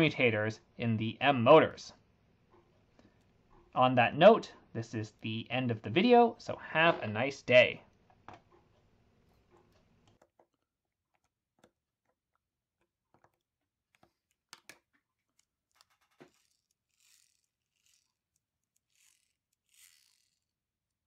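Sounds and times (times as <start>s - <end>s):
soft scraping rubs: 8.6s - 9.9s, 15.4s - 20.5s.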